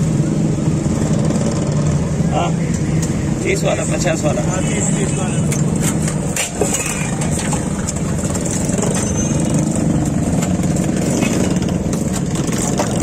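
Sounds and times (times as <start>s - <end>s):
street traffic: 0.0s - 13.0s.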